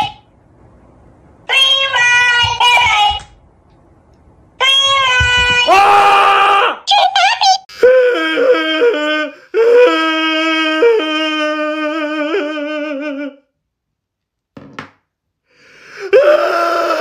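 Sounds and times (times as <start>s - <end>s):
high voice wailing: 1.5s - 3.3s, 4.6s - 7.6s.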